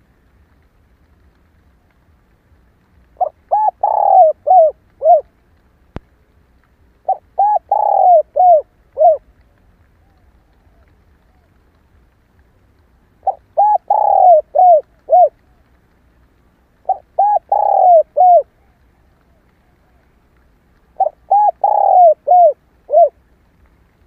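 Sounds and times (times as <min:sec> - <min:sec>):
dove cooing: 0:03.2 - 0:05.3, 0:07.0 - 0:11.6, 0:13.2 - 0:15.6, 0:16.8 - 0:20.1, 0:21.0 - 0:23.2.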